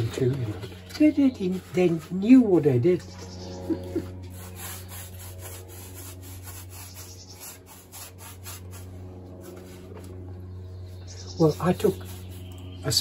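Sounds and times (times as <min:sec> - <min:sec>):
steady low hum: 0:00.0 - 0:13.0
brush scrubbing on plaster wall: 0:01.0 - 0:03.0, 0:03.7 - 0:10.2, 0:11.4 - 0:13.0.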